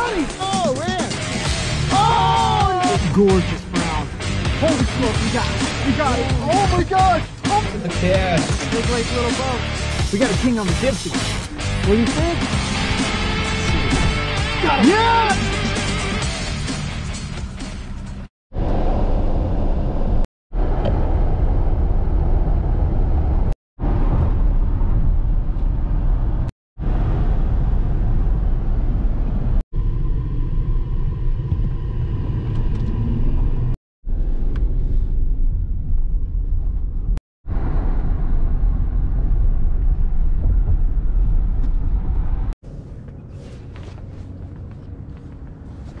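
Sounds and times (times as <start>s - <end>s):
car road and engine rumble: 17.4s - 46.0s.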